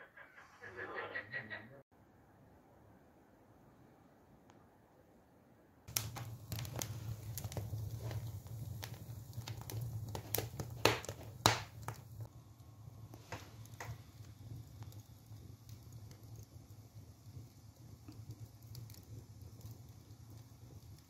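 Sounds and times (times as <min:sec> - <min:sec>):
wood fire crackling: 0:05.9 - 0:21.0.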